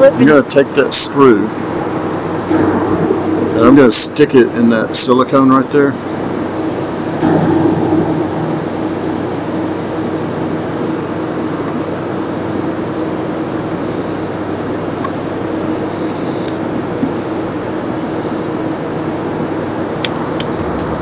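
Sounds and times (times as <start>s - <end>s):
steady mechanical hum: 0.0s - 21.0s.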